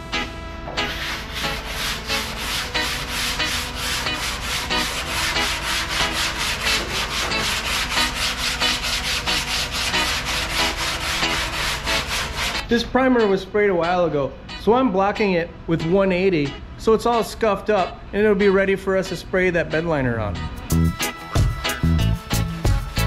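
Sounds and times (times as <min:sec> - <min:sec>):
hand sanding metal: 0:00.2 - 0:12.7.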